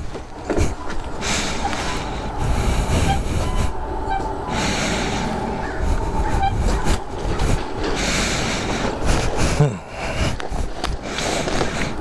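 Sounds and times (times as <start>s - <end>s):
tyres rumbling over gravel: 5.8s - 12.0s.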